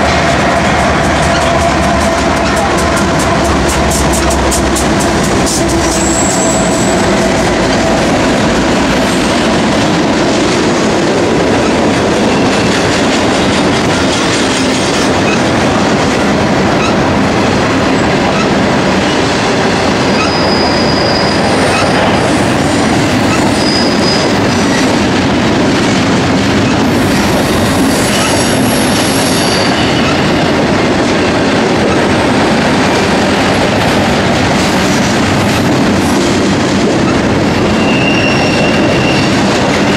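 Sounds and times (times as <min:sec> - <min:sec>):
train wheels rolling on rail: 0:00.0 - 0:39.9
high-pitched wheel squeals: 0:05.8 - 0:07.1, 0:20.1 - 0:22.0, 0:23.3 - 0:24.8, 0:37.7 - 0:39.4.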